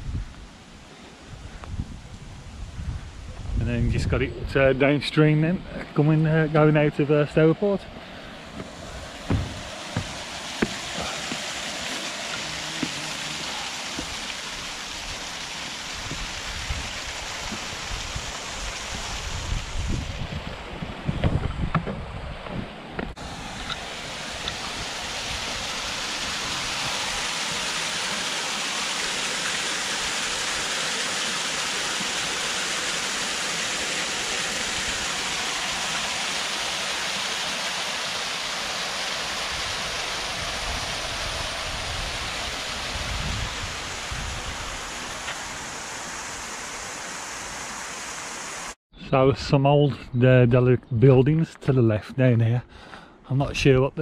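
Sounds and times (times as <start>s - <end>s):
rushing water: 4.6s - 21.4s, 23.0s - 48.8s.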